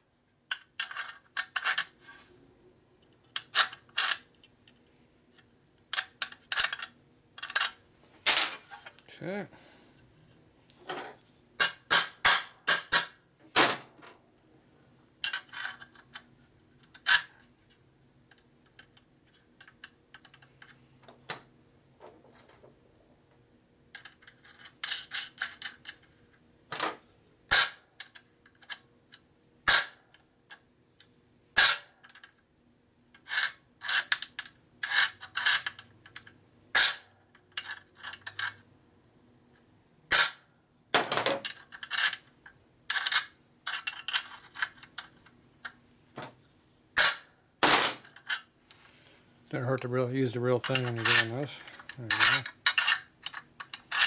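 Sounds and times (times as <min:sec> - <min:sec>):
metal tools clicking and clinking: 0:05.9 - 0:09.0, 0:41.0 - 0:42.2, 0:50.5 - 0:54.0.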